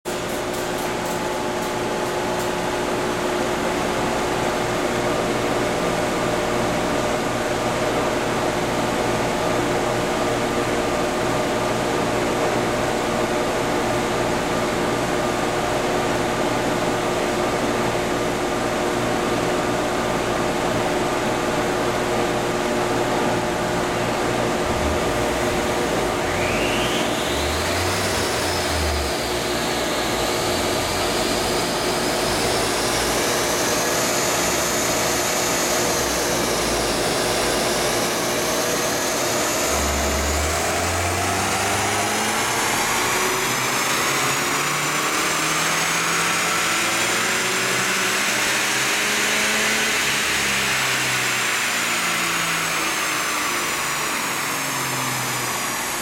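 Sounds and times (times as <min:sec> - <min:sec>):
rising whine: 0:21.9 - 0:56.0
steady hums: 0:23.1 - 0:31.2.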